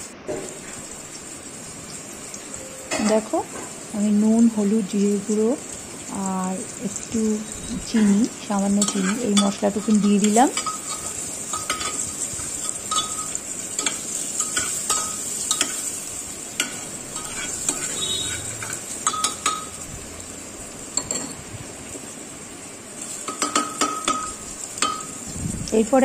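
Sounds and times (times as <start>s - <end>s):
food sizzling in butter: 0.0s - 26.0s
ladle clinking and scraping pot: 8.8s - 16.0s, 16.6s - 19.8s.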